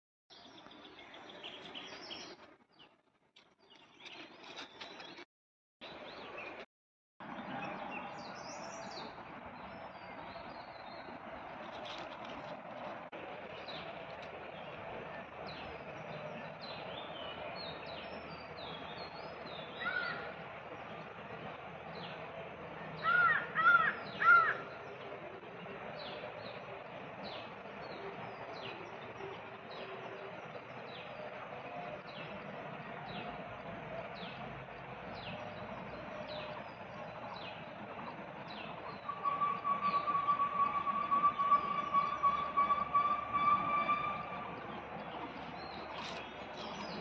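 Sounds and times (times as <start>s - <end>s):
loud arched bird calls: 19.7s - 20.4s, 23.0s - 24.8s.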